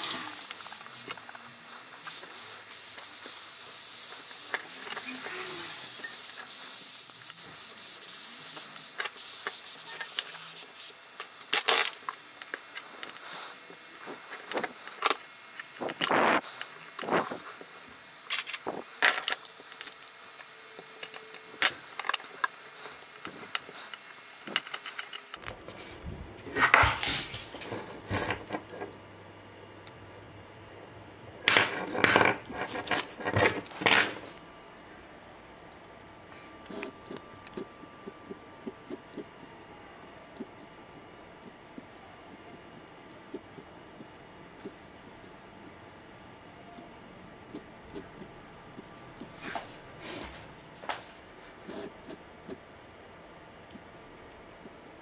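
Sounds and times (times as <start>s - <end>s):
air blow gun hissing: 0.0s - 1.2s, 2.0s - 11.0s.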